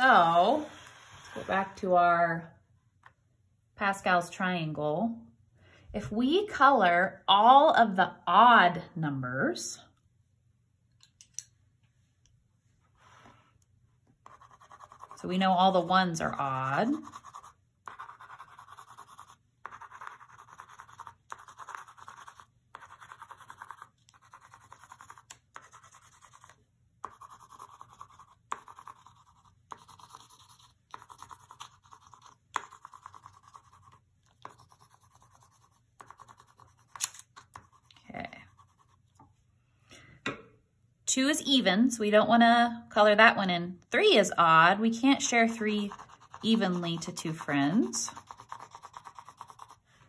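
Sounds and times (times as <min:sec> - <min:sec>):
colored pencil scratching on paper: 0:14.2 - 0:39.2, 0:45.2 - 0:50.0.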